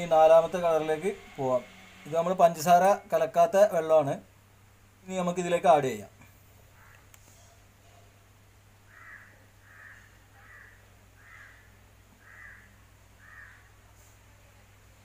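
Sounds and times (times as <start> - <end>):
bird calling: 8.9 - 13.7.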